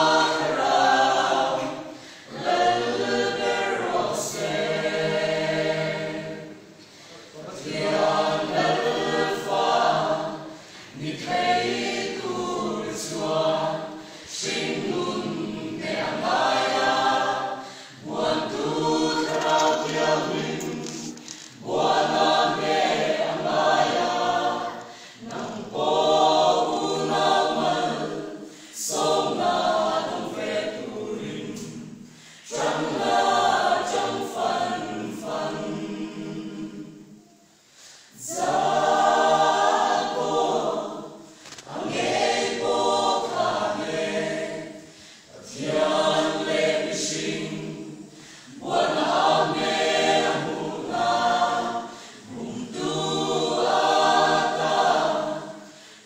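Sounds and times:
mixed choir singing a hymn: 0.0 - 56.0.

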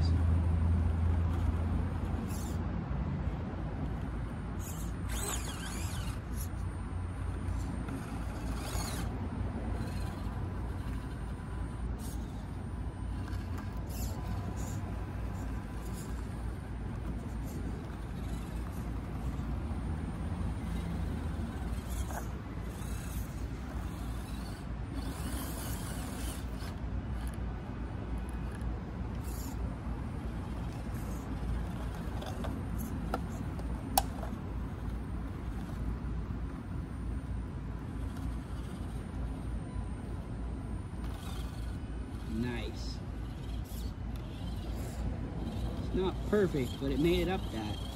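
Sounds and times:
tires scraping on stone: 0.0 - 2.6, 3.8 - 27.5, 28.2 - 47.9
toy car motor and gears whirring: 0.0 - 47.9.

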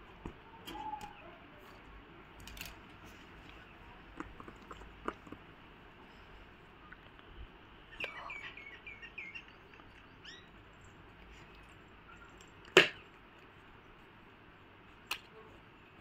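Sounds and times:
bird chirping: 7.9 - 11.0.

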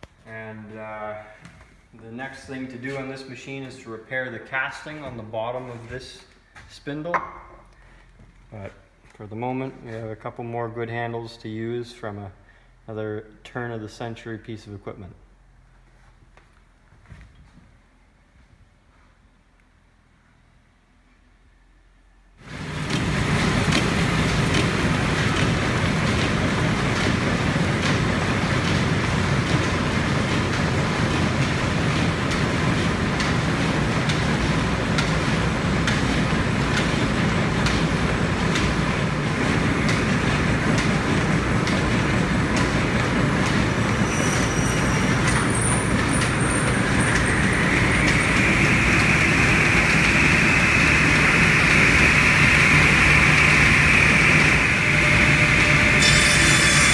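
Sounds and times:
lineshaft machinery humming: 22.4 - 56.9
hissing whirr: 42.6 - 56.9.

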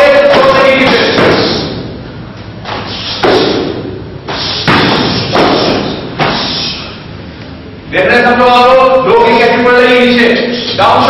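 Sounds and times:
heavy thuds of kicks and blows: 0.2 - 1.7, 2.6 - 6.5.

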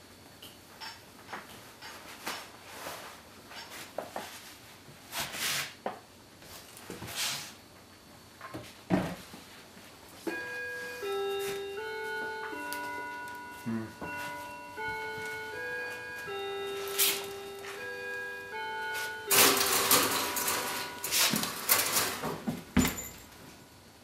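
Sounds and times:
simple melody music: 10.2 - 21.7.

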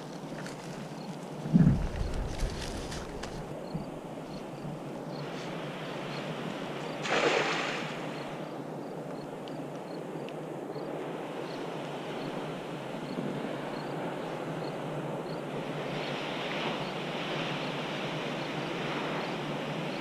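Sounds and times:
wind noise on microphone: 0.0 - 8.2
cast net splashing on water: 7.0 - 8.1.

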